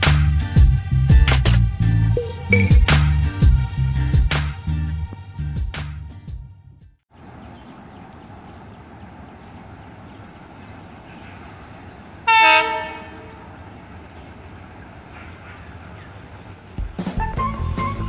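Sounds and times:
diesel locomotive horn blast: 0:12.2 - 0:14.0.

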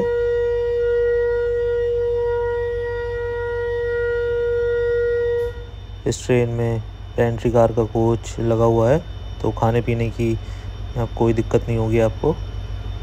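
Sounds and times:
locomotive horn blast: 0:00.0 - 0:05.8.

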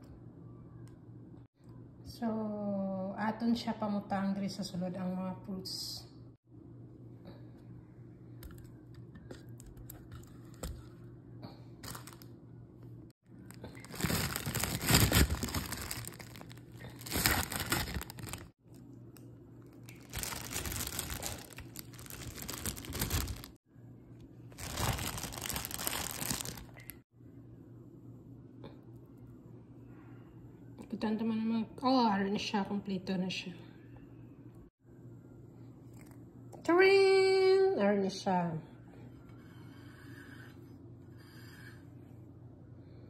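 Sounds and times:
plastic bag crinkling: 0:11.8 - 0:12.3, 0:13.4 - 0:18.5, 0:19.7 - 0:23.6, 0:24.5 - 0:27.0.

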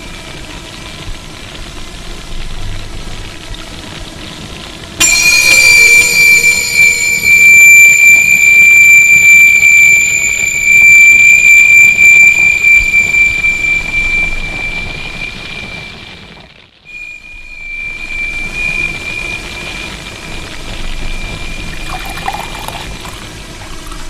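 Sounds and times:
high-pitched squeal: 0:05.0 - 0:24.0.

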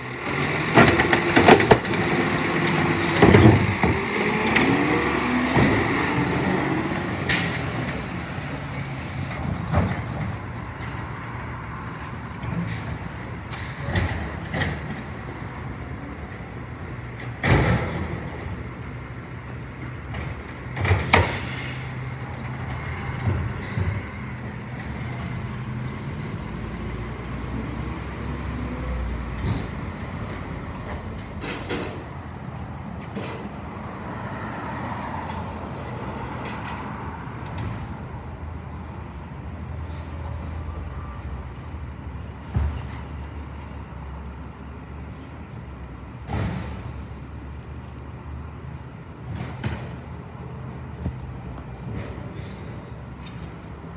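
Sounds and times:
cart clanking against hopper: 0:00.1 - 0:06.2, 0:29.4 - 0:32.2, 0:33.0 - 0:33.6
air brake hisses: 0:08.8 - 0:09.4, 0:12.6 - 0:13.9, 0:21.0 - 0:22.0, 0:39.9 - 0:40.4, 0:52.3 - 0:52.8.

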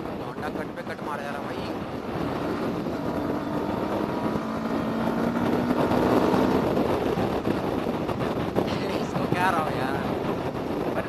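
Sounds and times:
wind rushing over microphone: 0:00.0 - 0:11.0
motorcycle engine under throttle: 0:02.0 - 0:08.6.

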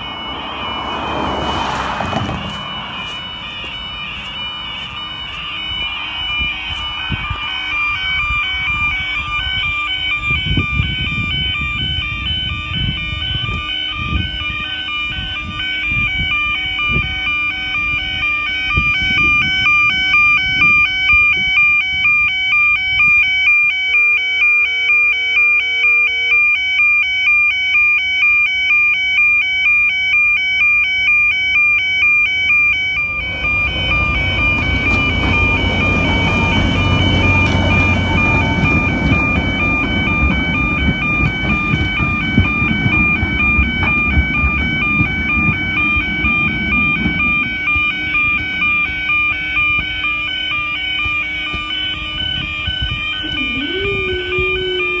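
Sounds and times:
diesel locomotive engine rumbling: 0:00.0 - 0:55.0
level crossing two-tone alarm: 0:00.0 - 0:55.0.

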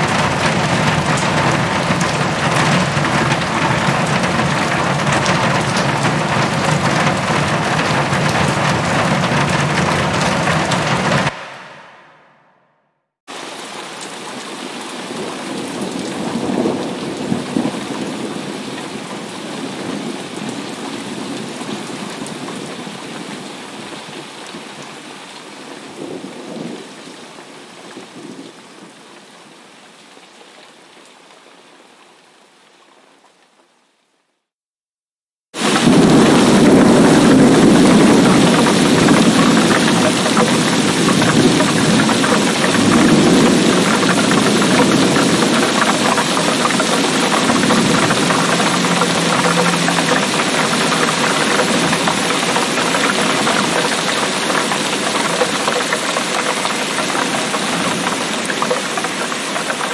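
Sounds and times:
heavy rain: 0:00.0 - 0:12.6, 0:13.3 - 0:34.2, 0:35.6 - 0:59.9
thunder rumbling: 0:00.0 - 0:12.7, 0:35.6 - 0:59.9.

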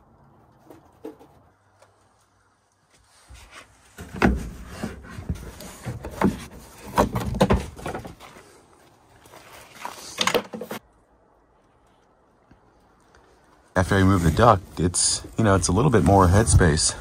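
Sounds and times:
hard objects knocking and clunking: 0:04.0 - 0:08.2.

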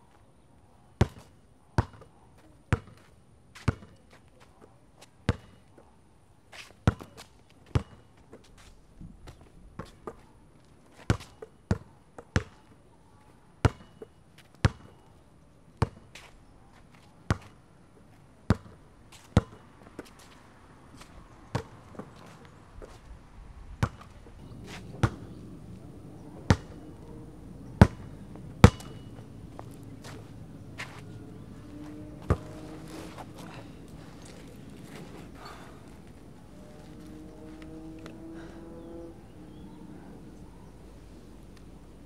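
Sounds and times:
basketball dribbling on concrete: 0:01.0 - 0:02.1, 0:02.7 - 0:04.0, 0:05.3 - 0:05.6, 0:06.9 - 0:08.1, 0:11.1 - 0:12.6, 0:13.6 - 0:15.0, 0:17.3 - 0:17.5, 0:18.5 - 0:18.8, 0:19.4 - 0:19.6, 0:23.8 - 0:25.3, 0:26.5 - 0:26.9, 0:27.8 - 0:30.2, 0:31.9 - 0:32.6
low steady hum: 0:23.4 - 0:42.0.

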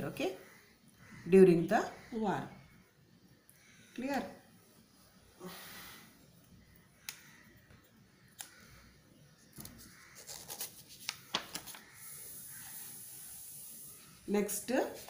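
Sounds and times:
paper page rustling: 0:09.6 - 0:11.9.

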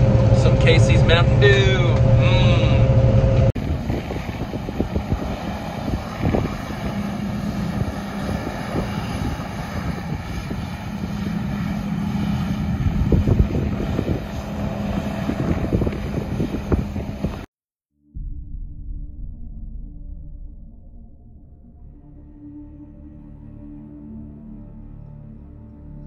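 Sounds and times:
vehicle engine running: 0:00.0 - 0:17.5
wind rumble on microphone: 0:00.0 - 0:17.5
low thumps: 0:18.2 - 0:22.1.

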